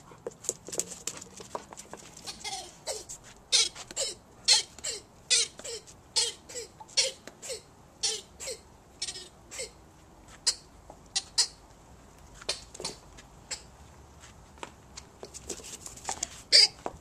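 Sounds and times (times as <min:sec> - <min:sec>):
squeaky dog toy squeaking: 0:02.2 - 0:09.8, 0:16.5 - 0:16.8.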